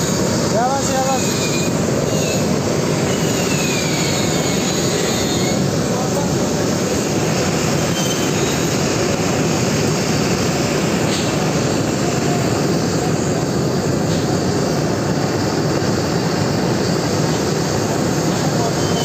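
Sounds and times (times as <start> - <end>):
torch flame rushing: 0.0 - 19.0.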